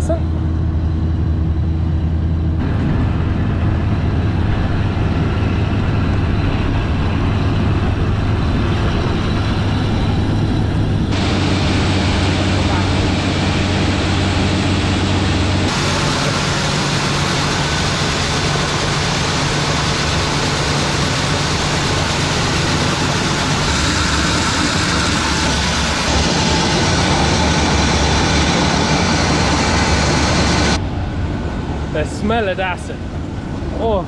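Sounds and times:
farm machinery engines droning: 0:00.0 - 0:34.0.

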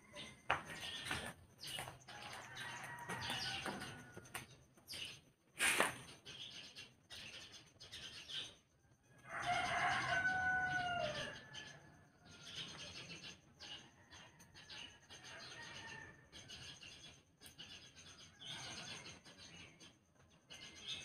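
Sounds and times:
rooster crowing: 0:02.1 - 0:04.3, 0:09.3 - 0:11.8.

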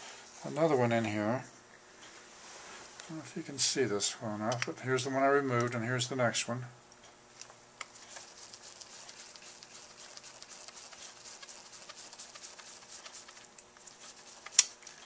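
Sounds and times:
screwdriver clicking and scraping: 0:14.4 - 0:15.0.

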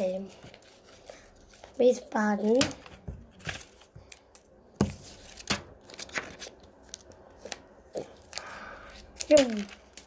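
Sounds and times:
paper rustling: 0:00.0 - 0:10.0
scissors snipping paper: 0:08.0 - 0:10.0.

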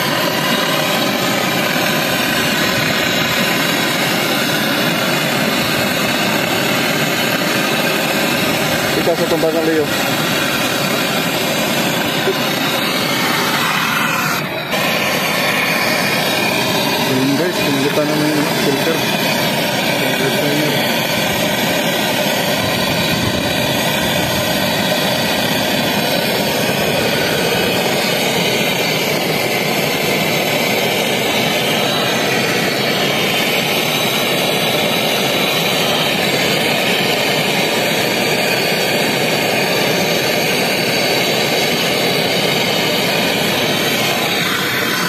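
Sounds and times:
torch flame hissing: 0:00.0 - 0:45.0.

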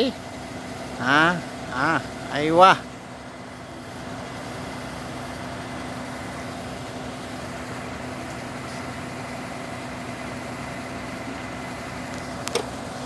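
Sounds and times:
engine idling: 0:00.0 - 0:13.0.

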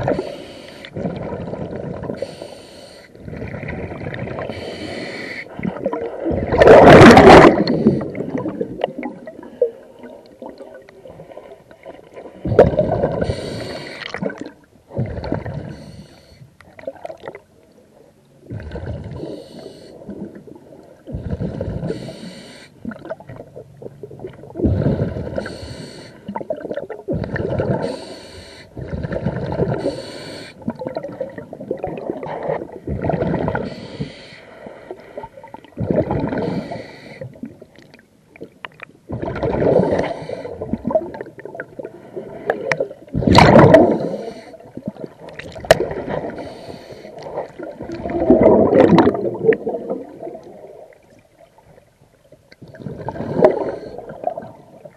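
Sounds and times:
exhaled bubbles underwater: 0:00.0 - 0:02.5, 0:03.1 - 0:16.1, 0:16.7 - 0:17.5, 0:18.4 - 0:34.0, 0:35.1 - 0:52.0, 0:52.6 - 0:54.9
hissing regulator inhales: 0:00.1 - 0:00.9, 0:02.2 - 0:03.1, 0:04.5 - 0:05.5, 0:13.2 - 0:14.1, 0:19.3 - 0:20.0, 0:21.9 - 0:22.8, 0:25.4 - 0:26.2, 0:27.8 - 0:28.7, 0:29.8 - 0:30.6, 0:33.6 - 0:35.0, 0:36.4 - 0:37.3, 0:43.9 - 0:44.6, 0:46.4 - 0:47.2.

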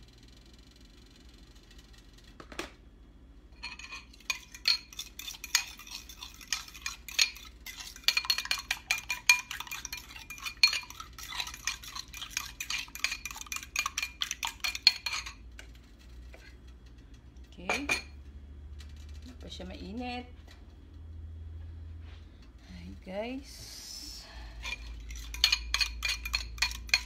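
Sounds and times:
fork whisking egg in bowl: 0:03.6 - 0:16.6, 0:24.5 - 0:27.0.

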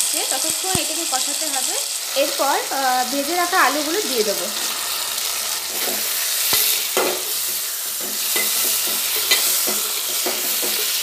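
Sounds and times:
oil sizzling: 0:00.0 - 0:11.0
spatula scraping metal pot: 0:05.6 - 0:11.0.

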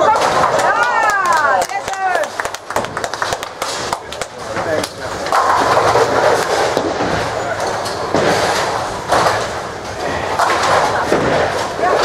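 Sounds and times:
bowling lanes rumble and clatter: 0:00.0 - 0:12.0
spectators cheering and clapping: 0:00.1 - 0:04.0.

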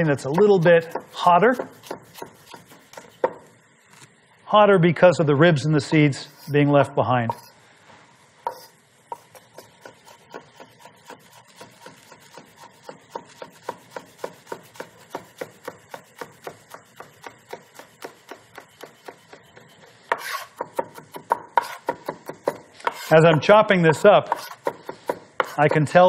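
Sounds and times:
knife chopping on wooden board: 0:00.2 - 0:03.5, 0:08.5 - 0:25.6.

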